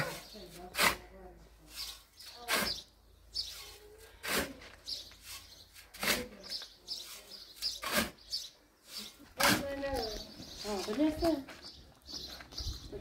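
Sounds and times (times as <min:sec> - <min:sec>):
shovel scraping sand and cement: 0:00.0 - 0:10.2
birds chirping faintly: 0:00.0 - 0:13.0.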